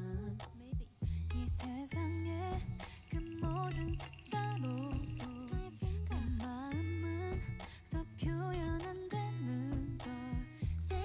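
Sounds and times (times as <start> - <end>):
held bass notes: 1.0 - 7.6
melody with bending pitch: 3.2 - 6.4.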